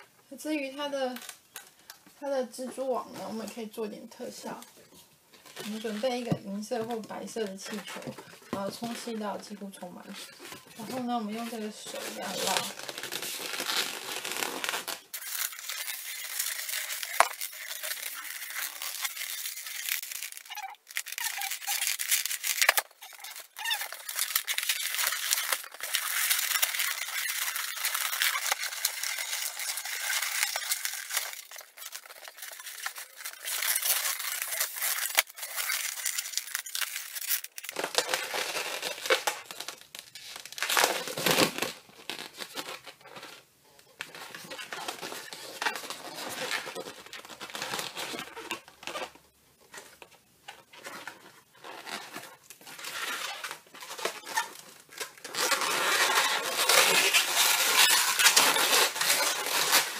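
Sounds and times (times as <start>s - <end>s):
balloon rubbing and crinkling: 2.5s - 59.9s.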